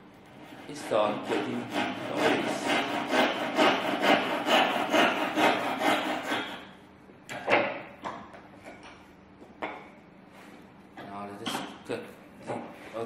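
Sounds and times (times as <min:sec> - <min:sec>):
saw cutting wood: 0:00.4 - 0:06.7.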